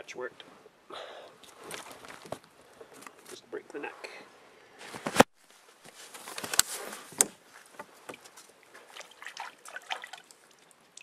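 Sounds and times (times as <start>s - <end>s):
wool sweater rustling: 1.4s - 4.2s, 4.8s - 10.2s
water trickling and sloshing: 7.6s - 11.0s.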